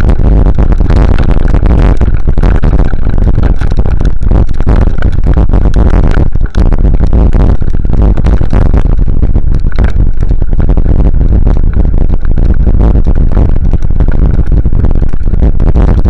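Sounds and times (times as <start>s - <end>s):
distorted vehicle rumbling and rattling: 0.0s - 16.0s.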